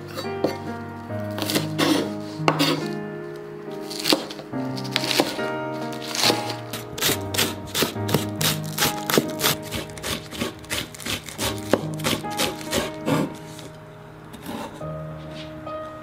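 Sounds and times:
background music: 0.0s - 16.0s
knife chopping on wooden board: 1.4s - 2.9s, 3.9s - 5.4s, 6.0s - 13.3s.

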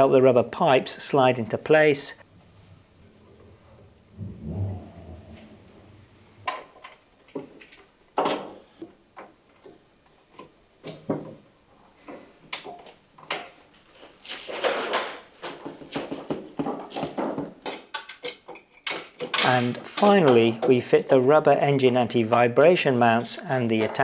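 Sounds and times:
rubber hose rubbing: 2.4s - 6.6s.

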